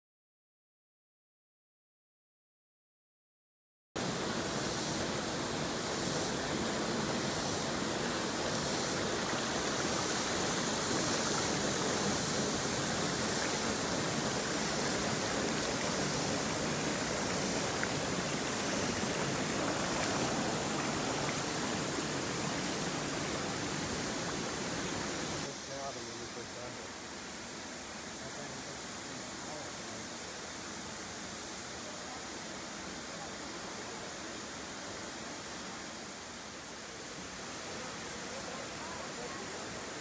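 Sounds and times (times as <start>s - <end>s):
water rushing over a spillway: 4.0s - 40.0s.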